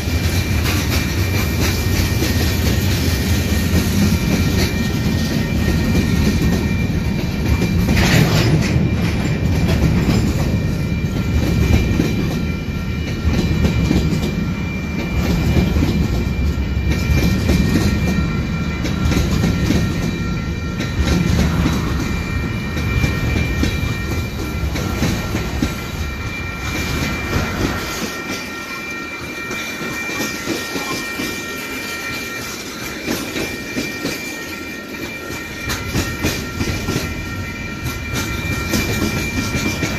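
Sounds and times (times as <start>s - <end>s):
train wheels clacking over rail joints: 0.0s - 14.4s, 15.0s - 39.9s
train rumble: 0.0s - 39.9s
thin high steady tones: 8.7s - 39.9s.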